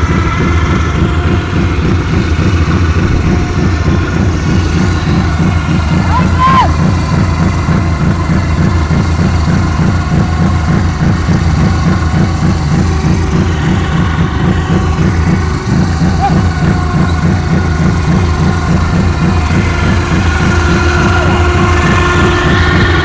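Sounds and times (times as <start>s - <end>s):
quad bike engine idling: 0.0s - 23.0s.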